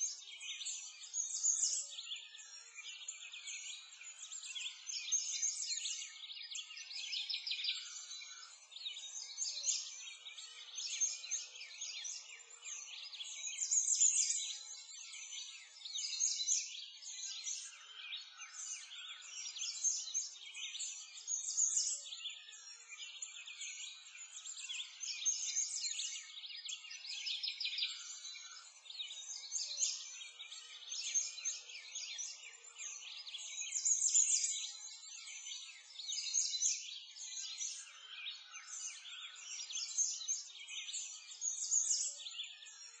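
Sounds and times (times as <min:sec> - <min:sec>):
songbirds chirping and trilling: 0:00.0 - 0:43.0.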